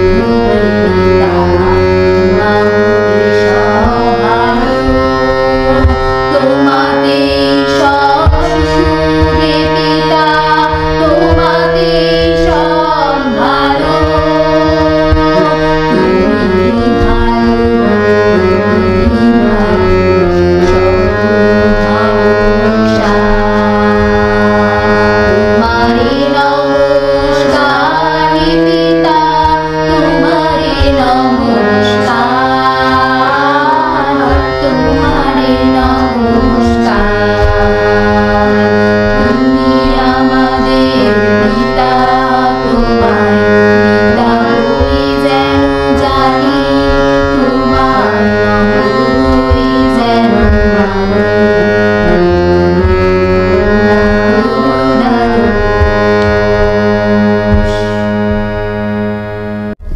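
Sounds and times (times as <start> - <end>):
two women singing together: 0.0 - 58.1
harmonium chords: 0.0 - 59.9.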